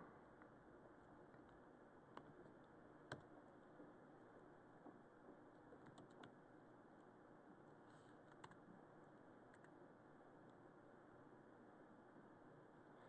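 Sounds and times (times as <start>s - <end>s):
faint keyboard keystrokes: 5.7s - 6.4s.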